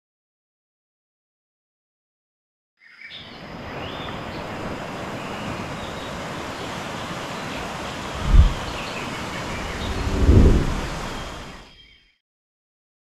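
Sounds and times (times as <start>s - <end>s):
steady rushing noise: 4.3s - 11.6s
wind buffeting microphone: 4.7s - 11.6s.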